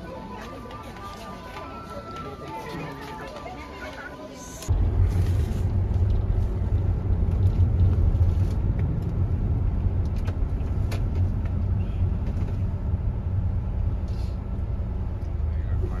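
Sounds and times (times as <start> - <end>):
road noise: 0.0 - 16.0
van engine rumble: 4.6 - 16.0.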